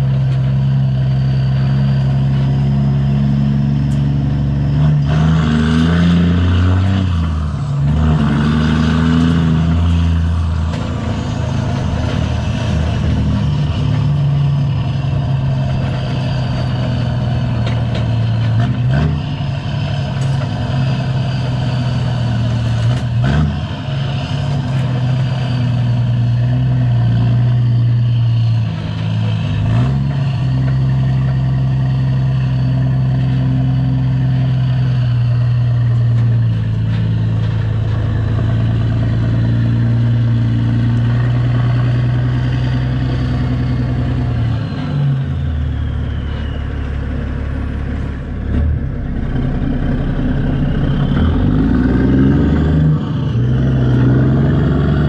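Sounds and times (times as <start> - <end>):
truck rig knocks and clunks: 0.0 - 27.6
diesel truck engine running: 0.0 - 55.0.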